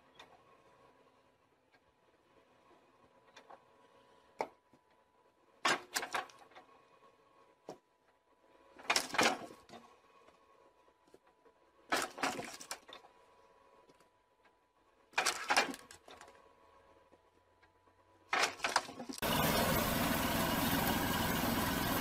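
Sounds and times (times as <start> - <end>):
log splitter machine hum: 18.4 - 22.0.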